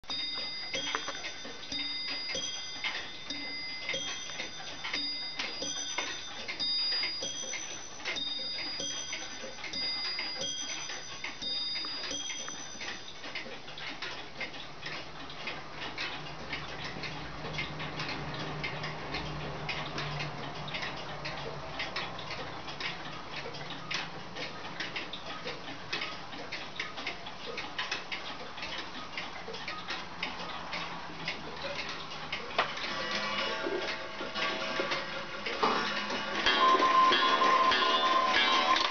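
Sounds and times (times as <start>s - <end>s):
high-pitched bell-like chimes: 0.0s - 13.3s, 36.4s - 38.9s
mechanical clocks ticking: 0.0s - 38.9s.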